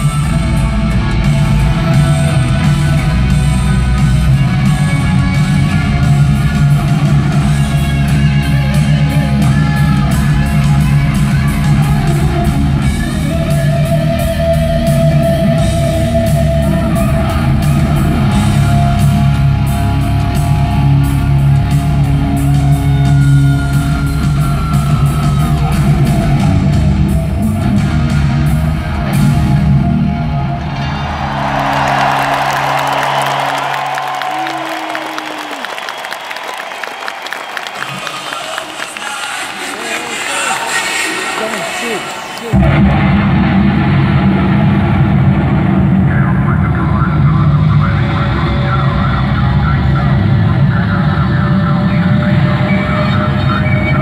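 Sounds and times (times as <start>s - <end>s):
live hard rock backing: 0.0s - 35.2s, 42.5s - 54.0s
distorted electric guitar solo: 42.0s - 54.0s.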